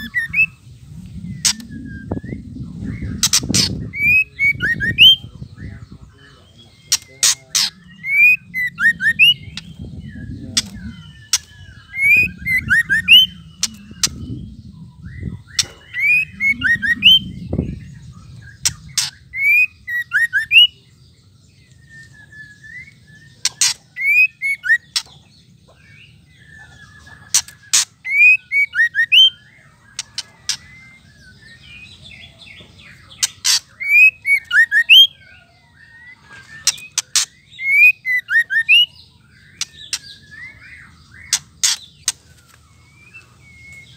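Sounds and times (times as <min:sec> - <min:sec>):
bird whistled notes: 0:06.9 - 0:17.8.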